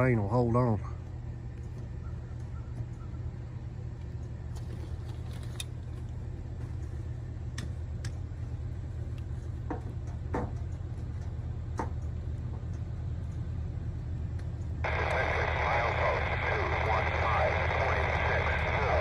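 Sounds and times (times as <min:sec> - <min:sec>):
distant locomotive rumble: 0:05.7 - 0:19.0.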